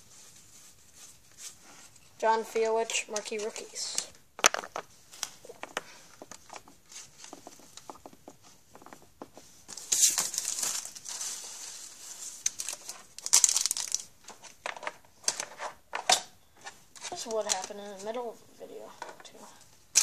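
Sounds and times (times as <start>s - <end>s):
card pack wrapper crinkling and tearing: 9.8s - 11.5s, 12.4s - 14.1s.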